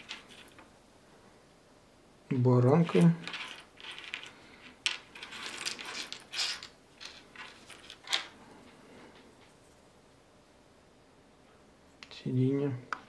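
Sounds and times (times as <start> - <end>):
small plastic parts clicking and rattling: 2.9 - 9.2.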